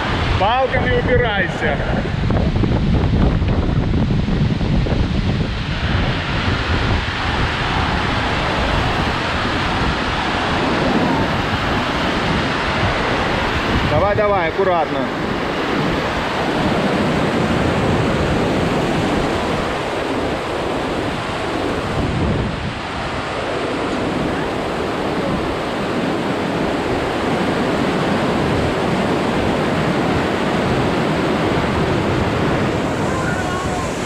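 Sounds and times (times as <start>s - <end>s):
water rushing over boulders: 0.0s - 34.0s.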